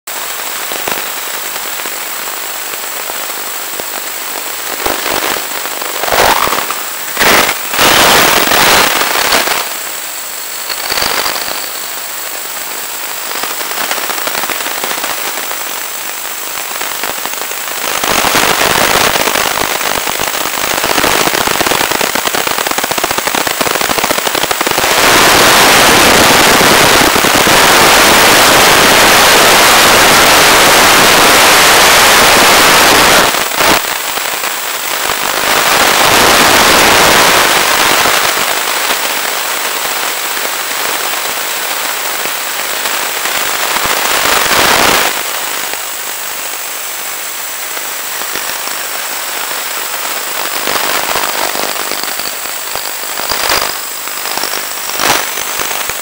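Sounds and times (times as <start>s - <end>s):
radio hiss and crackle: 0.1s - 56.0s
faint high whistle: 6.0s - 6.8s.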